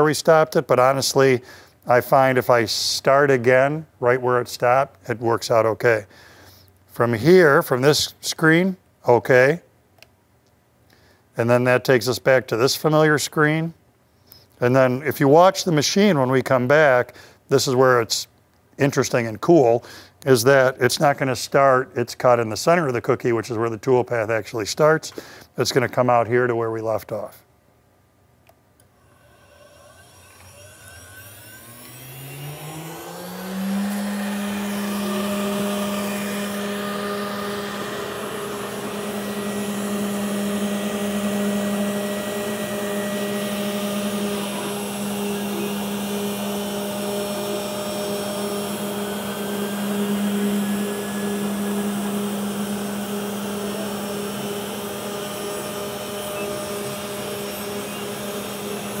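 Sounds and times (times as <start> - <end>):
router spindle whine: 28.8 - 59.0.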